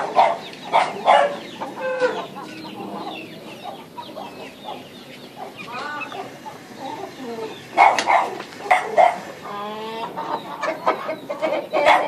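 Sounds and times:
dog barking: 0.0 - 1.4, 7.8 - 9.3, 11.8 - 12.0
rooster clucking: 0.0 - 12.0.

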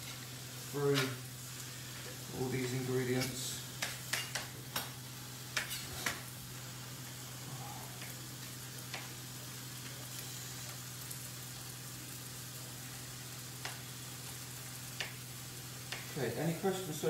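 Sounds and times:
faint hiss: 0.0 - 4.0
steady low hum: 0.0 - 17.0.

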